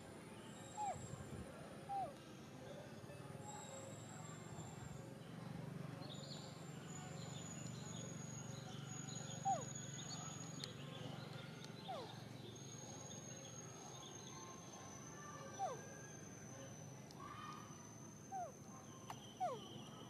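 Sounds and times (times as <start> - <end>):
faint bird chirps: 0.3 - 20.0
falling animal calls: 19.4 - 19.7.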